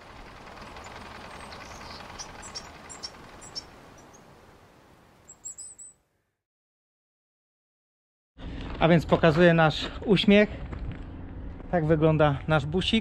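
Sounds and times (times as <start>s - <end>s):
short high chirps: 5.3s - 6.0s.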